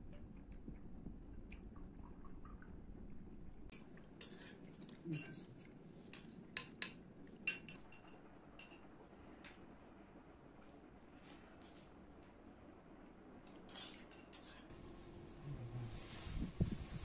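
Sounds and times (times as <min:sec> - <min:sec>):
spoons clinking on ceramic bowls: 0:06.6 - 0:08.8.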